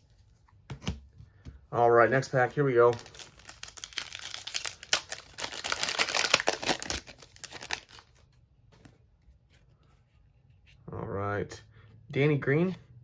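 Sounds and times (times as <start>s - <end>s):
foil wrapper tearing and crinkling: 2.8s - 8.2s.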